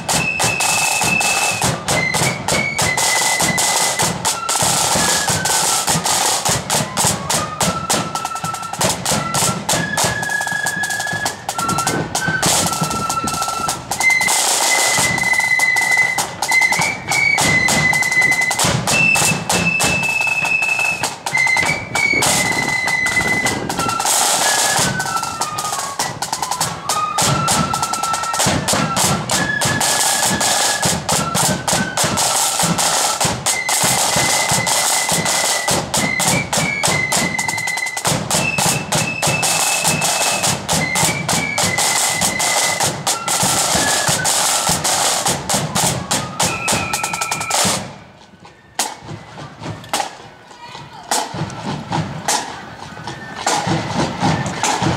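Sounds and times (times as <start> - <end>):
flutes playing melody: 0.0 - 54.9
snare drumming and rolls: 0.0 - 54.9.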